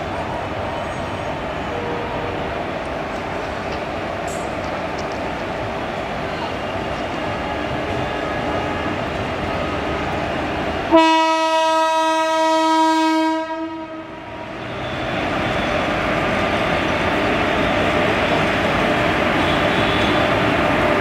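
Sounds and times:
moving train rumble: 0.0 - 21.0
locomotive horn blast: 10.9 - 14.1, 19.4 - 20.4.

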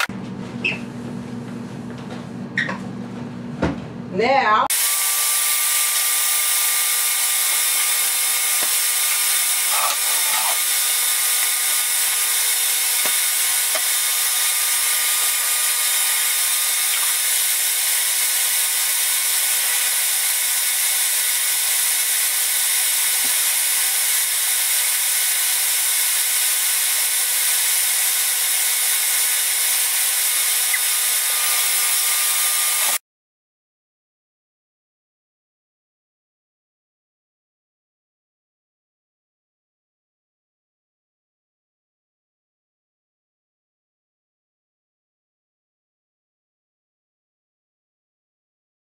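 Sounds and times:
blender motor whine: 4.7 - 33.0.

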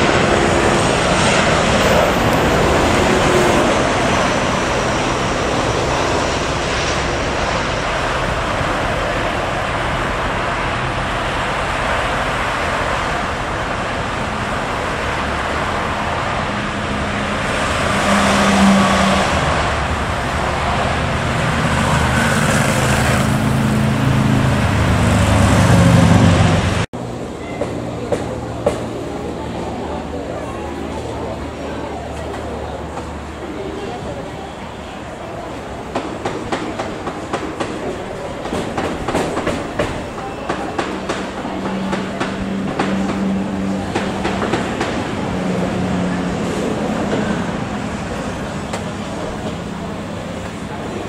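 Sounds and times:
jet engine roar: 0.0 - 51.0
low engine rumble: 0.0 - 51.0
road traffic: 0.0 - 51.0
vehicles passing: 0.0 - 51.0.

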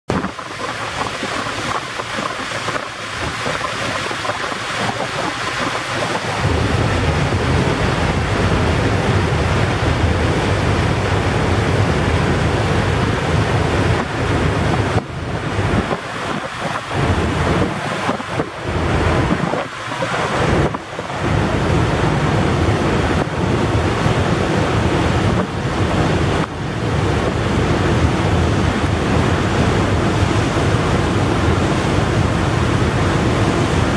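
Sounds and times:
water rushing: 0.1 - 33.9
wind buffeting microphone: 0.1 - 33.9.

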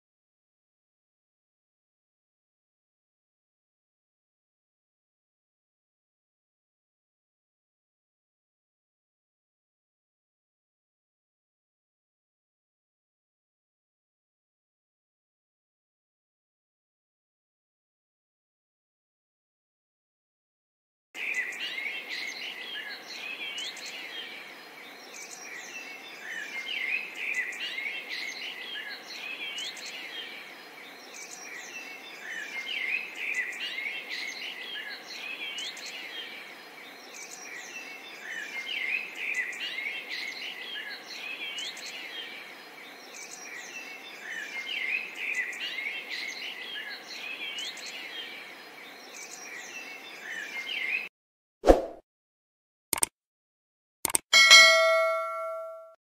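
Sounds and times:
songbirds chirping: 21.2 - 51.1
whoosh: 51.6 - 52.0.

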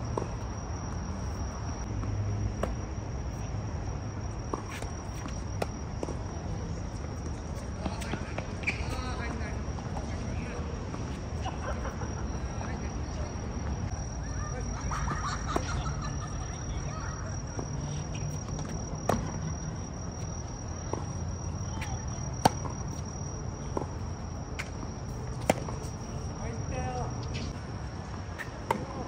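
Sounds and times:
tennis ball bounces: 18.3 - 23.9, 28.4 - 29.0.

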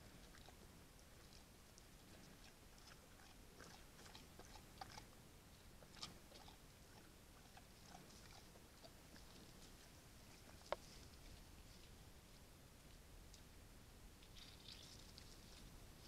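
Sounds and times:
bear chewing and crunching: 0.0 - 5.1, 5.8 - 12.0.

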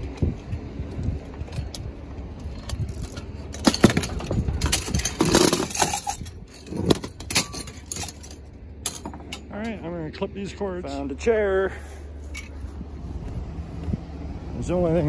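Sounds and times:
vehicle engine idling: 0.0 - 15.0
metal poles clanking: 1.4 - 10.5, 11.8 - 12.8.

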